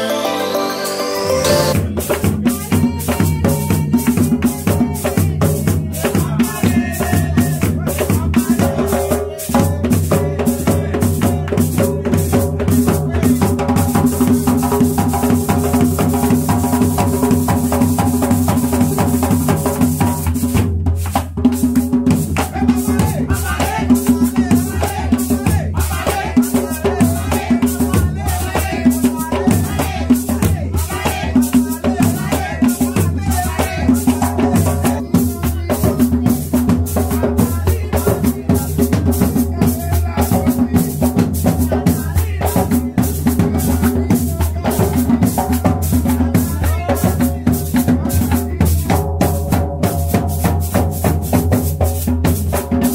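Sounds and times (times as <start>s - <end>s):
voices singing or calling: 0.0s - 14.8s, 22.4s - 49.0s
drums beating fast rhythm: 0.0s - 52.9s
shaker: 12.3s - 52.9s.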